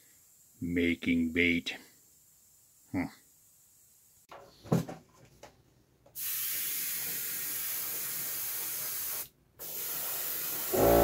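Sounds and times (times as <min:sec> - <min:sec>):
airbrush spraying hiss: 0:06.2 - 0:11.0.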